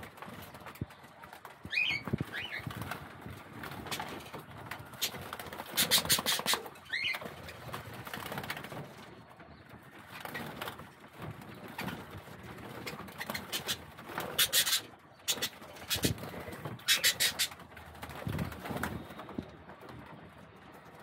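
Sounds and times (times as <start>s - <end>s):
soft bird calls: 12.7s - 17.7s.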